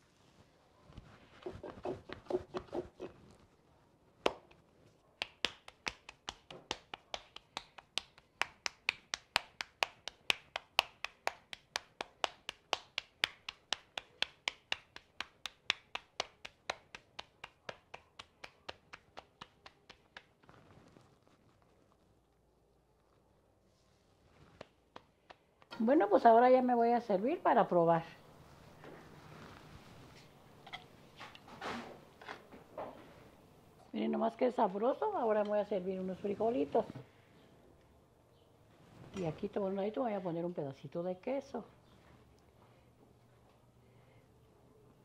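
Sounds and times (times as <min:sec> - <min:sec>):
hands slapping tortilla dough: 0:01.0 - 0:03.1, 0:04.2 - 0:04.6, 0:05.2 - 0:21.6, 0:24.4 - 0:25.8.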